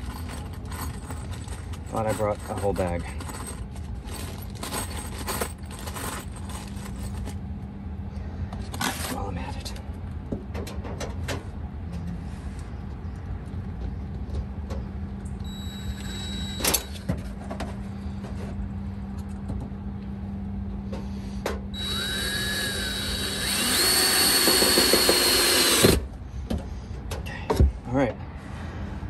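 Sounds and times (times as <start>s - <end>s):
cordless drill whining: 15.5s - 17.0s, 21.8s - 26.0s.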